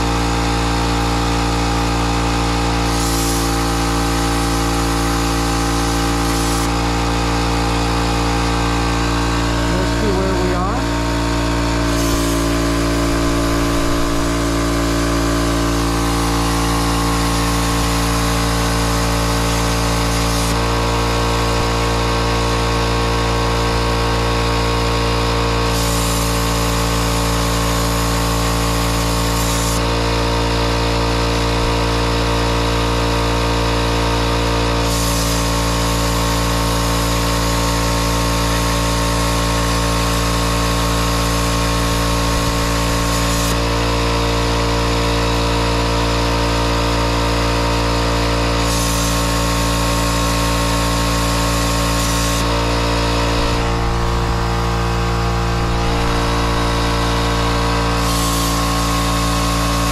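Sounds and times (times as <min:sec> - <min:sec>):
plasma torch hissing and buzzing: 0:00.0 - 0:59.9.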